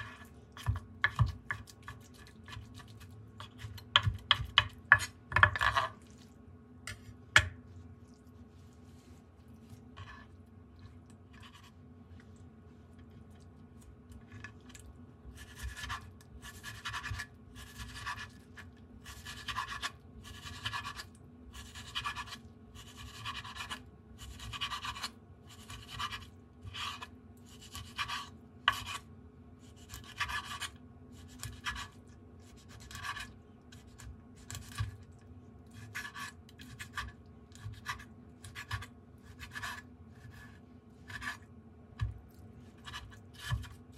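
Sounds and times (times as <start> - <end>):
knife slicing fish on cutting board: 35.8 - 41.4, 42.8 - 43.8.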